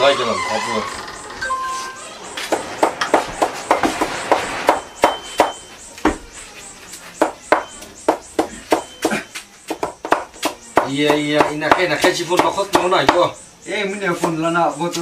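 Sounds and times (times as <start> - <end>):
knife chopping stalks on block: 7.2 - 13.3.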